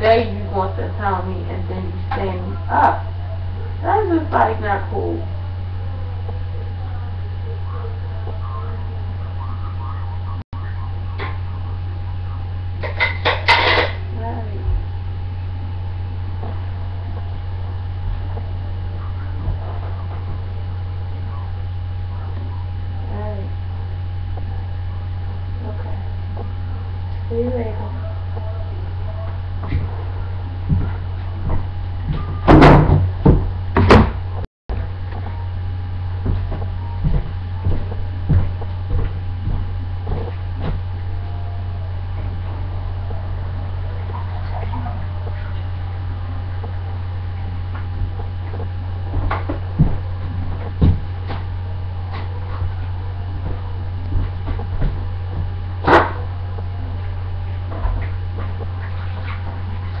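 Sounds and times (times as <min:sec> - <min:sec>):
low electrical hum: 0:00.0 - 1:00.0
dishes and utensils clinking: 0:12.8 - 0:14.0.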